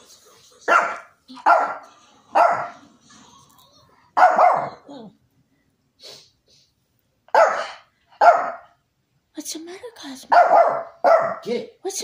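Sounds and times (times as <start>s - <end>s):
small dog barking: 0.7s - 2.8s, 4.2s - 4.9s, 7.3s - 8.8s, 10.3s - 11.5s.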